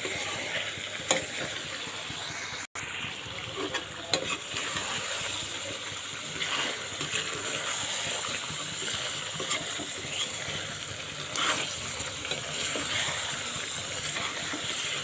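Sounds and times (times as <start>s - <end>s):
gravy sizzling and bubbling in a pan: 0.0s - 15.0s
ladle scraping a metal pan: 6.2s - 15.0s.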